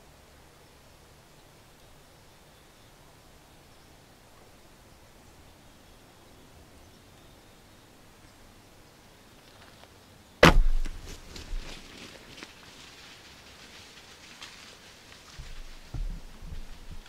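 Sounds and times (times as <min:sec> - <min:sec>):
low thump: 0:10.4 - 0:11.7.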